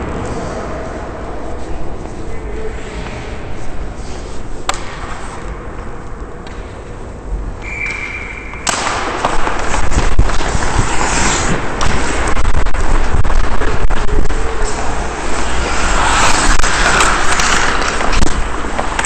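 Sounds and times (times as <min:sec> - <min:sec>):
low rink rumble: 0:00.0 - 0:19.0
sticks and puck clacking: 0:00.0 - 0:19.0
skates scraping on ice: 0:08.0 - 0:19.0.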